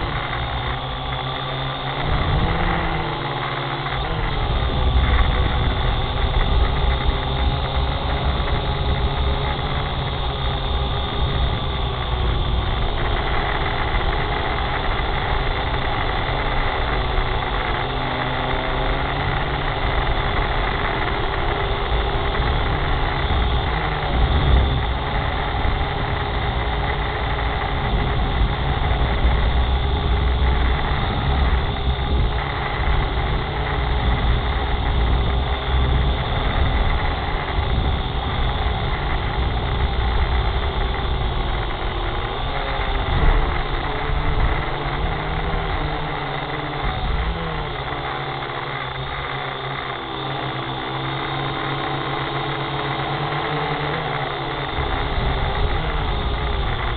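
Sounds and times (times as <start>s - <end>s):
motor humming: 0.0s - 56.9s.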